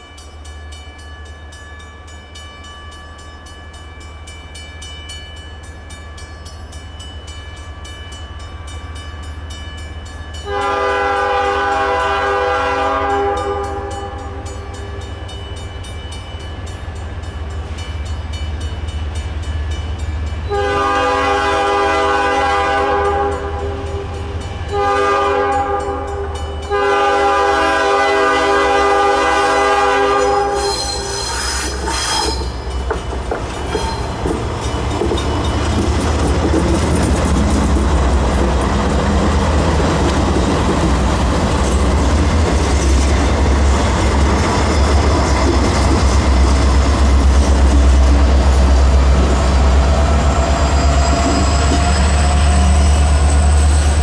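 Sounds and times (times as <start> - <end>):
diesel locomotive engine rumble: 0.0 - 54.0
train air horn blasts: 10.4 - 15.0, 20.5 - 24.1, 24.7 - 32.6.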